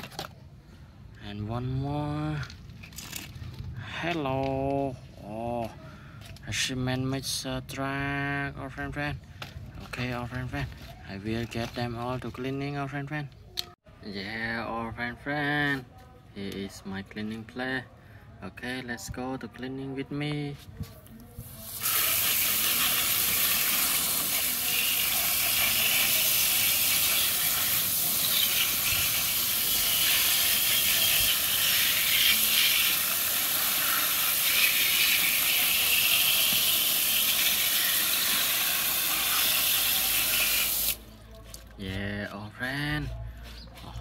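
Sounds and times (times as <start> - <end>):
hose spraying water jet: 21.5 - 41.0.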